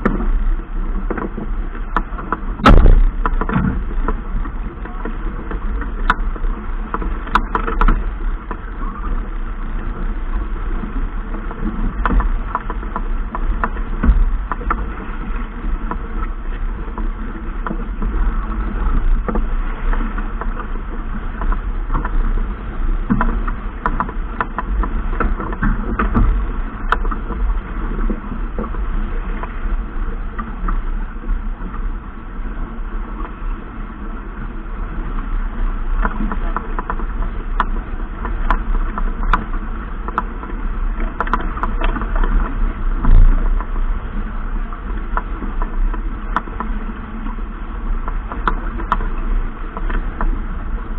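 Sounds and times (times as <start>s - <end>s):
boat engine rumble: 0.0s - 50.9s.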